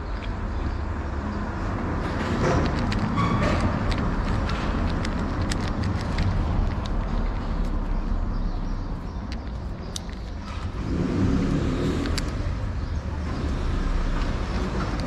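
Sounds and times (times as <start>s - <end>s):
road traffic rumble: 0.0s - 15.0s
kitten crunching kibble: 2.0s - 8.0s.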